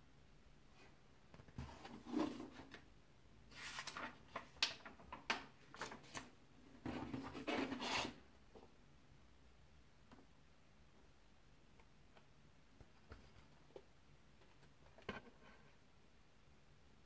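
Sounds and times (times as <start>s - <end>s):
paper pages rustling: 3.5s - 6.3s.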